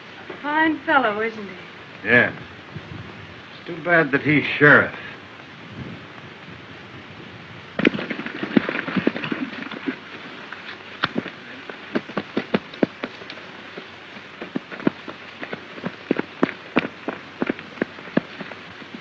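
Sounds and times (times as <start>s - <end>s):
old film soundtrack hiss: 0.0s - 19.0s
horse hoofbeats on hard ground: 7.8s - 19.0s.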